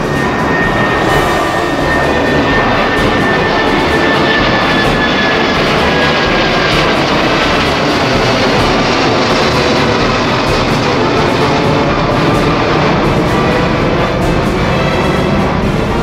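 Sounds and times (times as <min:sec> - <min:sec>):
jet engines roaring: 0:00.0 - 0:16.0.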